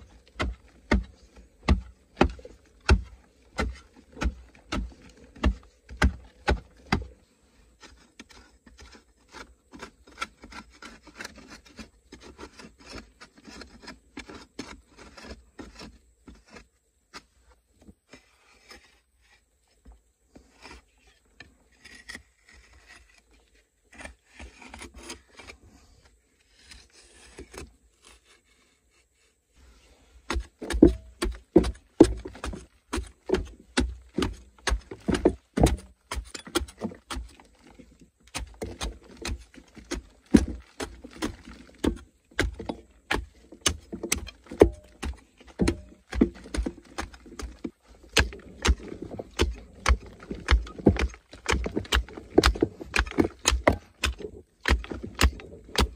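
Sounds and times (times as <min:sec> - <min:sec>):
metal blade scraping clay wall: 0:00.0 - 0:17.4, 0:20.3 - 0:28.8, 0:29.6 - 0:55.9
dull thuds: 0:30.3 - 0:55.9.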